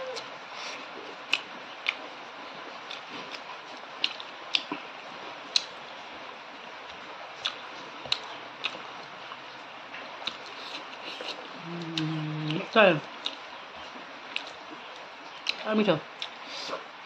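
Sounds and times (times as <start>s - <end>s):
person chewing food: 2.8s - 5.8s, 6.9s - 9.4s, 10.0s - 15.6s, 16.2s - 16.9s.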